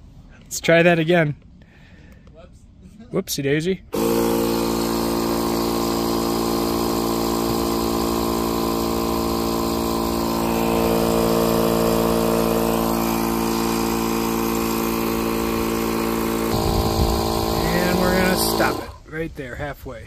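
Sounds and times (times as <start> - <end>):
air compressor humming: 3.9 - 19.1.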